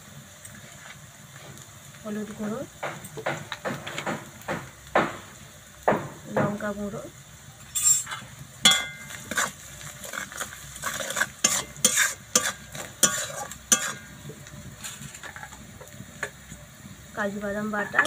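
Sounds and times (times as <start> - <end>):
onions sizzling in oil: 0.0 - 18.0
spatula scraping metal pan: 7.7 - 14.2.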